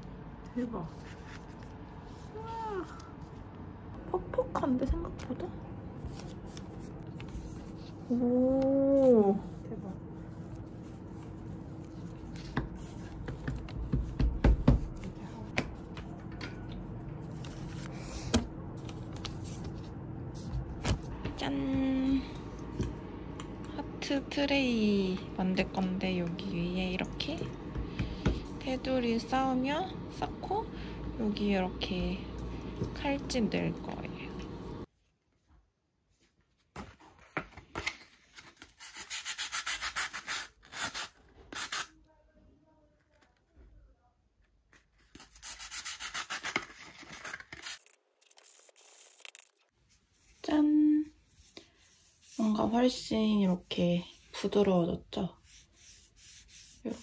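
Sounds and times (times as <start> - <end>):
sandpaper rubbing: 38.7 - 41.9, 55.4 - 57.0.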